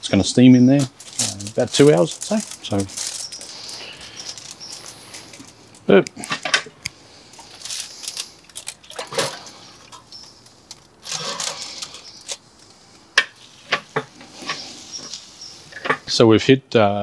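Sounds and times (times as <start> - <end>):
foil rustle: 0.1 - 5.9, 7.2 - 12.7.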